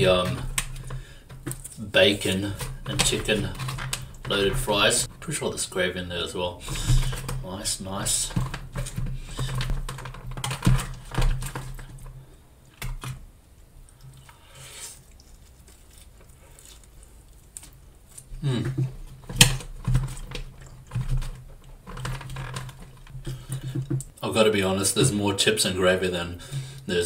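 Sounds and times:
plastic fork scraping foil tray: 0.0s - 5.3s, 6.6s - 12.1s
wet chewing with mouth clicks: 13.8s - 18.8s.

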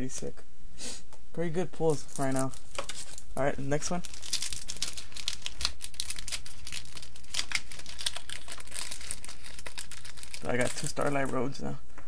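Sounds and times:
foil pack crinkling: 1.8s - 11.3s.

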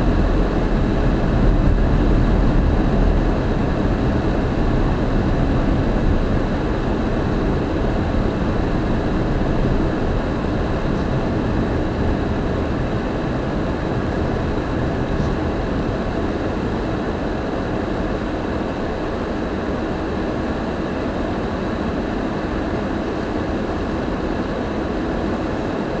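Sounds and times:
road and engine noise in car: 0.0s - 26.0s.

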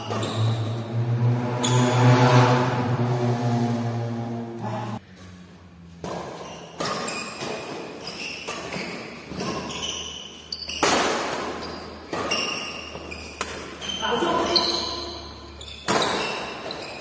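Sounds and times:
racket striking shuttlecock: 6.0s - 9.8s, 10.6s - 13.8s, 15.8s - 17.0s.

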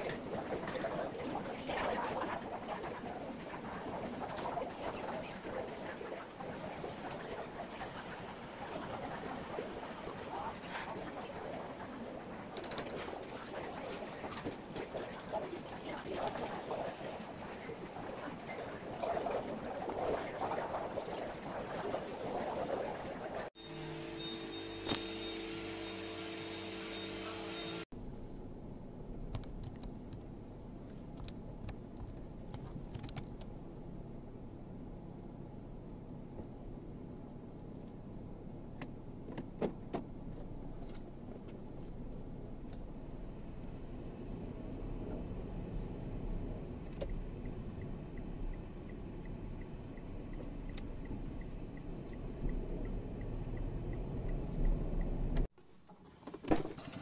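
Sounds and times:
car engine and road rumble: 28.0s - 55.5s.

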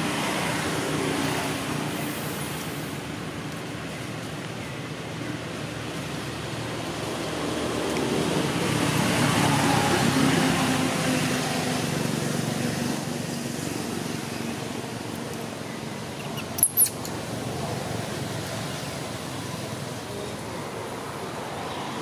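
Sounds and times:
sharp high-pitched squeaks: 16.2s - 17.1s.

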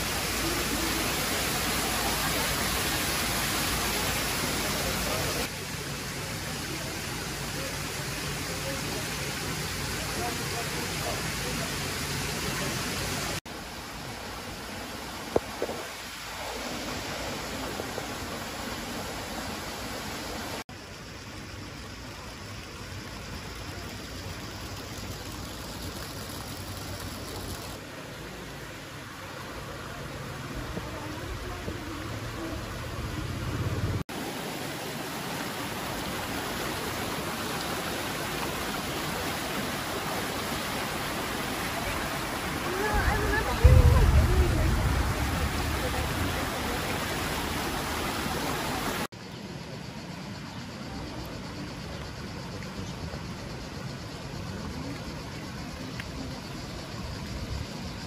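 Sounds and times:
river water rushing: 0.0s - 20.6s, 24.5s - 49.1s.

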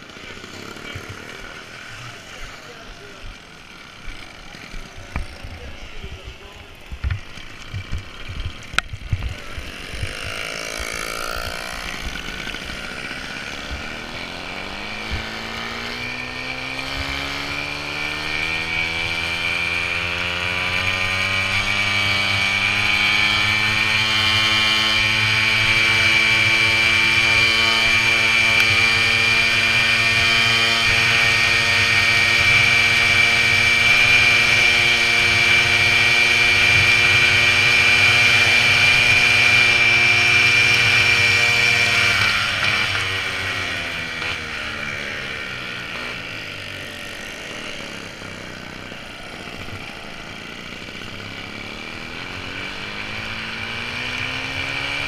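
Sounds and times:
moped engine whining: 0.0s - 55.0s.

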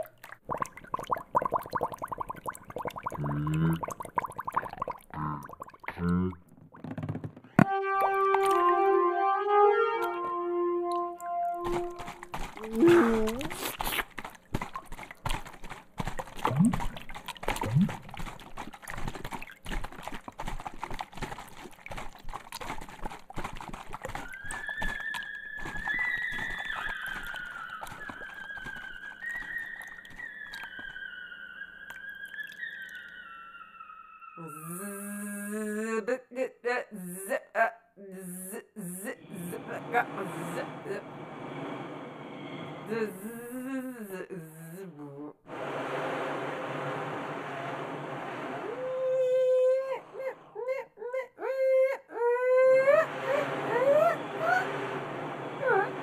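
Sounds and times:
rapid clicks and knocks: 6.8s - 7.7s
steady rushing hiss: 45.5s - 48.7s
wavering voice-like whine: 52.8s - 56.0s.

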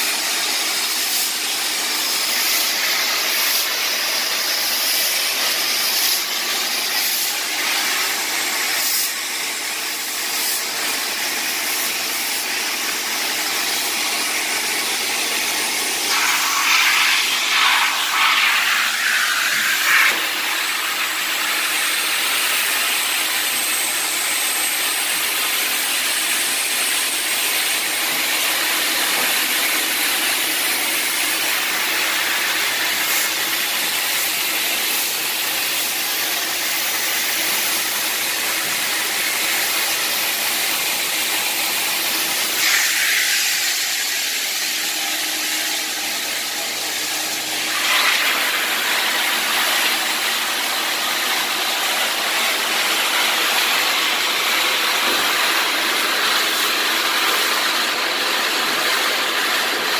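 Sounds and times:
wet vac sucking water: 15.4s - 22.6s, 38.8s - 45.0s.

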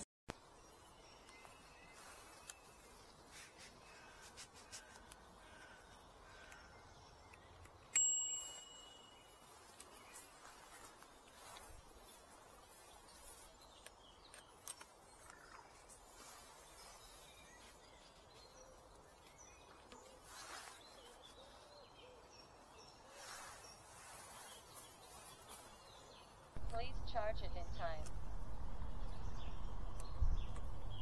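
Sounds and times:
birds chirping: 0.3s - 31.0s.

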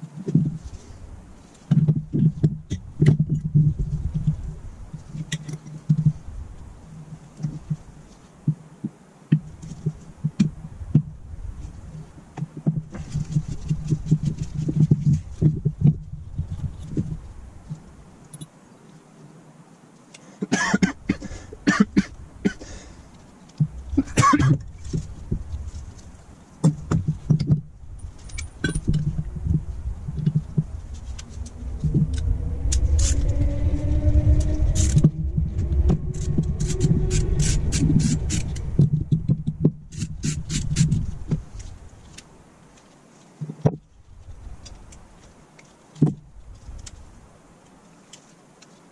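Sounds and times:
low rumble with rising tone: 27.6s - 41.6s.

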